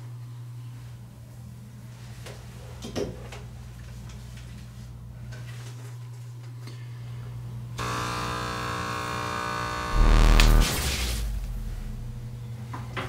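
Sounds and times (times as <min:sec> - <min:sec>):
steady low hum: 0:07.1 - 0:13.0
buzzing of many held tones: 0:07.8 - 0:12.6.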